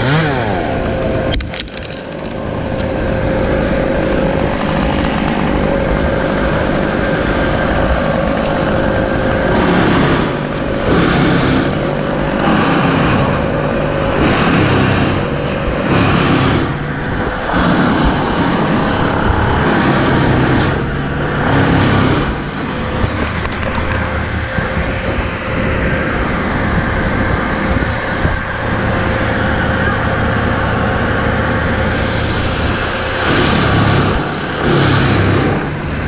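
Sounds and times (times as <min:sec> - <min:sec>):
large engine surging: 0:00.0 - 0:36.0.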